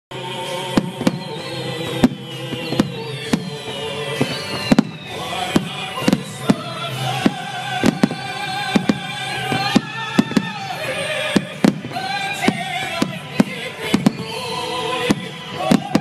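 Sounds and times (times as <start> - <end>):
music playing: 0.1 - 16.0
firework shells bursting: 2.0 - 10.8.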